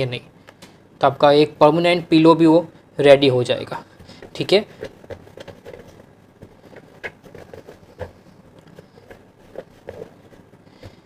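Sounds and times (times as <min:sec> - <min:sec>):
cloth rustling: 0:03.6 - 0:11.0.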